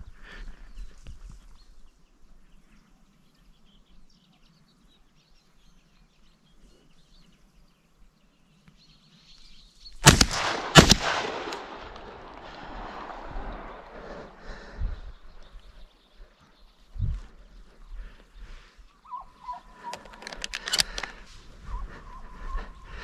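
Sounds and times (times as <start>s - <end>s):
faint birds chirping: 0.0s - 10.1s, 11.6s - 23.0s
shotgun shots with rolling echo: 10.0s - 14.7s.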